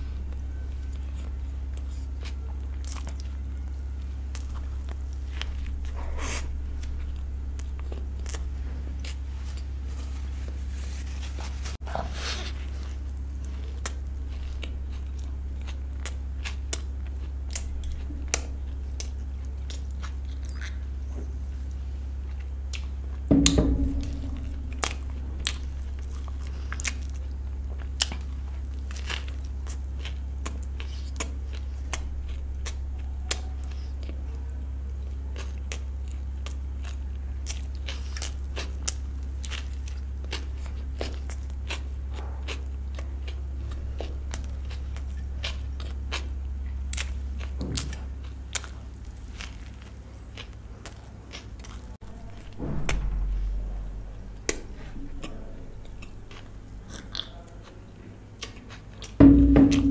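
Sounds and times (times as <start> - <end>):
low hum: 0.0 - 11.5, 17.5 - 28.8, 59.2 - 59.9
person chewing: 0.3 - 10.2, 11.6 - 23.2, 25.4 - 34.2, 34.9 - 52.0, 54.4 - 59.2.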